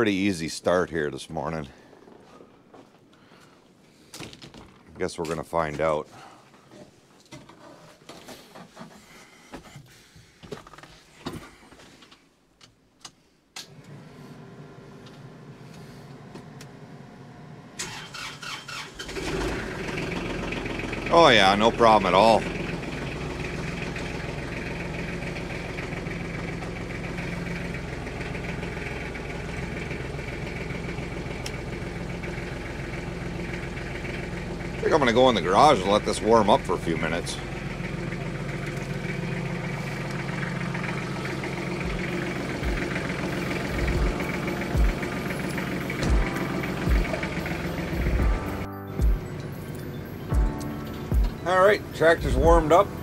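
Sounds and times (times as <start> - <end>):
tractor diesel engine idling: 13.8 - 53.0.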